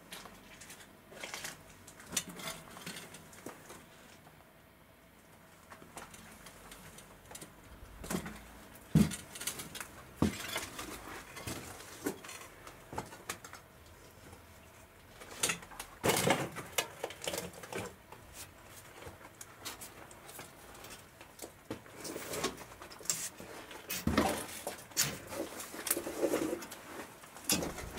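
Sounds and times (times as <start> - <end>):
footsteps on rubble: 7.9 - 12.2, 27.0 - 27.9.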